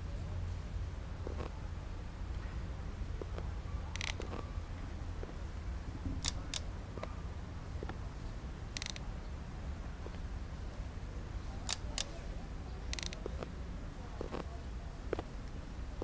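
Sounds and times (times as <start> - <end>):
steady low rumble: 0.0 - 16.0
plastic toy camera clicks: 3.9 - 4.4, 6.2 - 6.7, 8.8 - 9.0, 11.6 - 12.1, 12.9 - 13.5.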